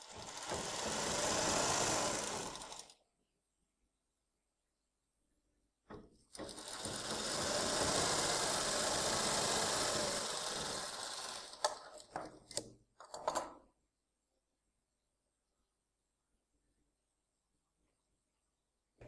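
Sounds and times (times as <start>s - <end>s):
sewing machine stitching: 0.0s - 3.0s, 5.9s - 13.6s.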